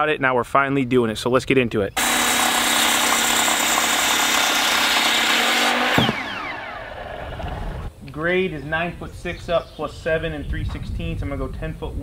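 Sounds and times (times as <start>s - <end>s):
circular saw cutting wood: 2.0s - 7.9s
saw blade spinning down whine: 2.0s - 7.9s.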